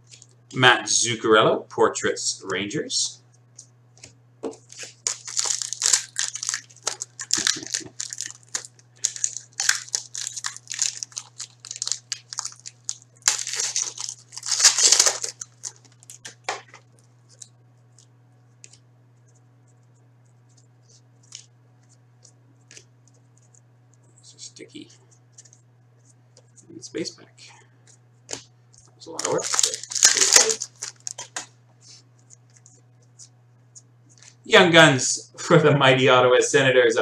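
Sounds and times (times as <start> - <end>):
foil wrapper crinkling and tearing: 4.7 - 17.5, 28.8 - 31.5.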